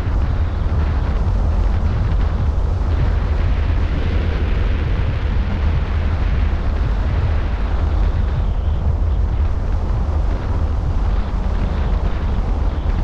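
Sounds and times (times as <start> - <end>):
road noise: 0.0 - 13.0
wind buffeting microphone: 0.0 - 13.0.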